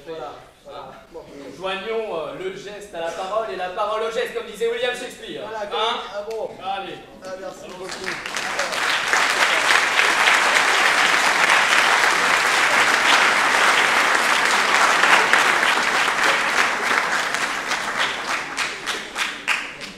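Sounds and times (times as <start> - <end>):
audience applauding: 7.6 - 19.9.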